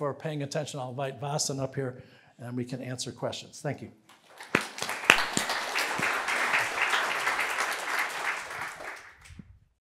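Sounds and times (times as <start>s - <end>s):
audience applauding: 4.1s - 9.4s.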